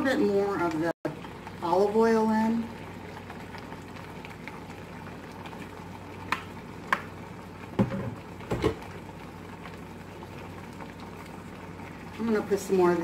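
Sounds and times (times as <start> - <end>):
vegetables simmering in a skillet: 0.0 - 13.0.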